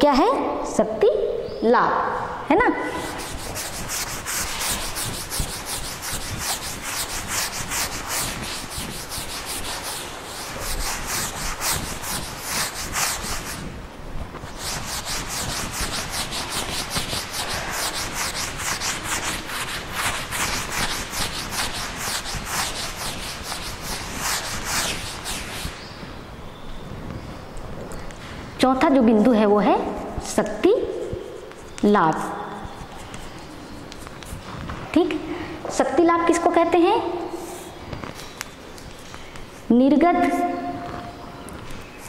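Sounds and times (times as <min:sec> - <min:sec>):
handwriting strokes scratching: 0:02.8 - 0:13.8, 0:14.4 - 0:25.9, 0:30.8 - 0:34.4.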